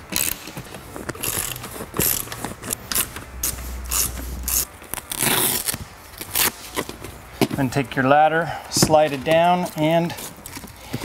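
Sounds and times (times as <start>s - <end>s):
ratchet wrench clicking: 1.2s - 3.1s.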